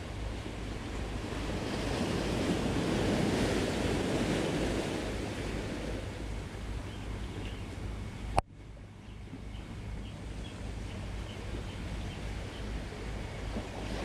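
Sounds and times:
waves washing onto rocky shore: 0:01.0 - 0:06.2.

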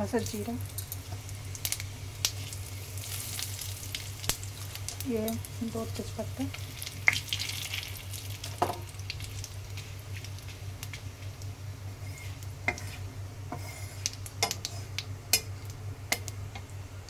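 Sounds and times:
spices sizzling in oil: 0:00.0 - 0:16.8
metal spatula scraping pan: 0:12.0 - 0:14.9.

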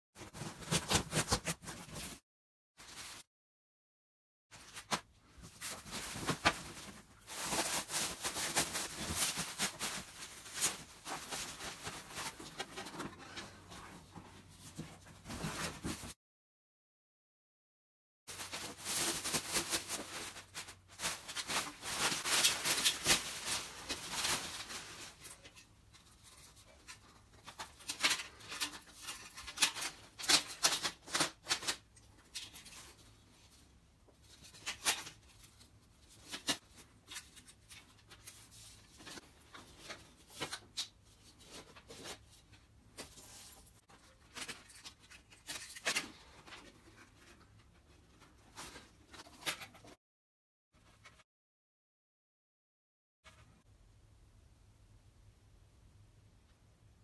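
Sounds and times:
plastic packaging rustling: 0:04.6 - 0:14.1, 0:18.3 - 0:33.4.

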